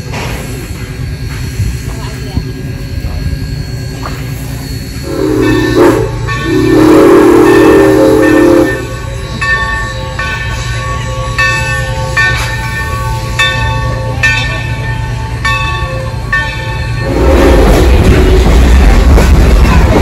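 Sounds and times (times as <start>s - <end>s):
hiss of steam: 0.0s - 11.1s
bell ringing in slow strokes: 3.6s - 6.8s, 7.4s - 17.2s
steam locomotive whistle: 4.6s - 12.3s, 15.1s - 18.7s.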